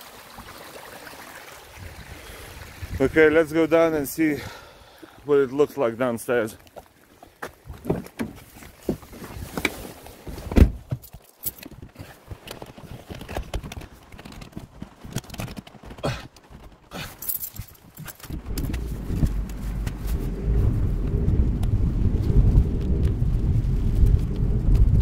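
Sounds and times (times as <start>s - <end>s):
handling knocks and clicks: 7.4s - 20.0s
car engine idling: 18.4s - 21.9s.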